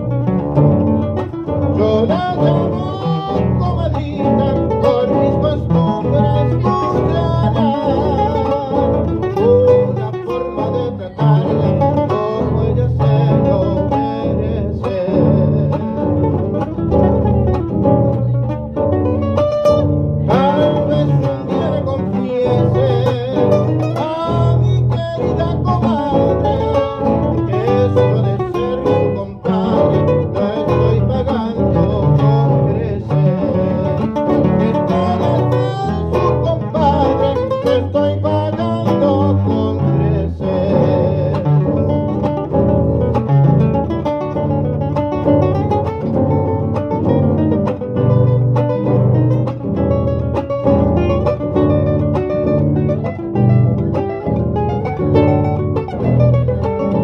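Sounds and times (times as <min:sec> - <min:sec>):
acoustic guitars playing: 0:00.0 - 0:57.0
man singing: 0:00.0 - 0:57.0.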